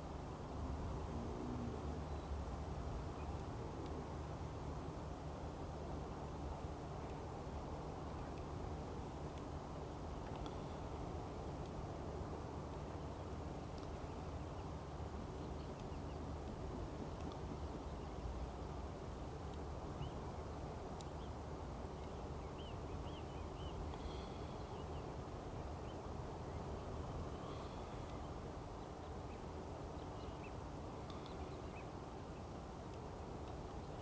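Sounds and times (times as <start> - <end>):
faint hum: 0.0 - 34.0
small birds chirping: 1.6 - 4.8, 12.6 - 34.0.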